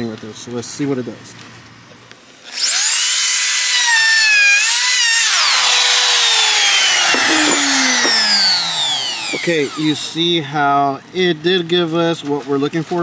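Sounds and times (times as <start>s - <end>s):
router motor whine cutting wood: 2.4s - 10.3s
router winding down: 2.5s - 10.3s.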